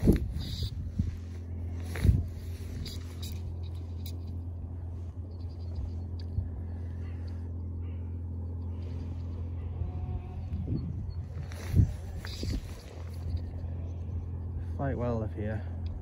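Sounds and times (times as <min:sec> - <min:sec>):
wind buffeting microphone: 0:00.0 - 0:03.8, 0:08.8 - 0:14.6.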